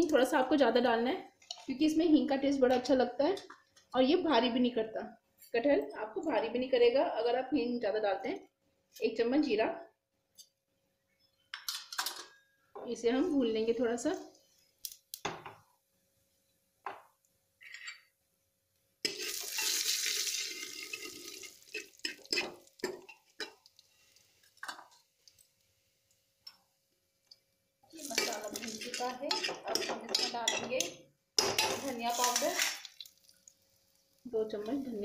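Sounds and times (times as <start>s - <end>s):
sizzling hiss: 19.0s - 26.6s
spices frying in oil: 19.0s - 35.0s
ladle scraping and clinking pot: 20.4s - 23.6s, 28.1s - 32.5s.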